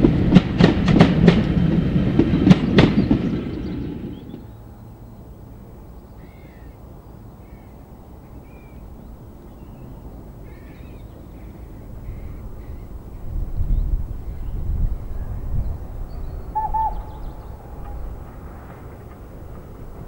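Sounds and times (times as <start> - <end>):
low outdoor rumble: 0.0 - 20.0
crows cawing: 10.4 - 12.8, 16.6 - 18.1.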